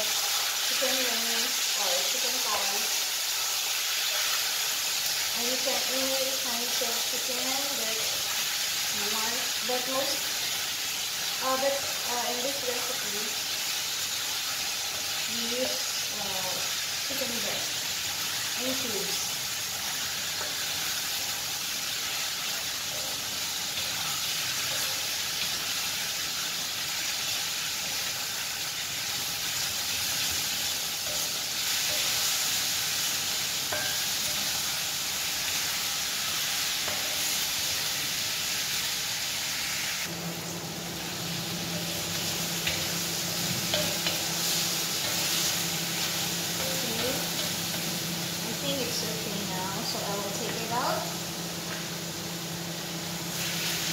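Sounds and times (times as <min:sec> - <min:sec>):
chicken sizzling in oil: 0:00.0 - 0:53.9
spatula tapping wok: 0:19.4 - 0:25.8, 0:29.5 - 0:38.0, 0:40.4 - 0:53.7.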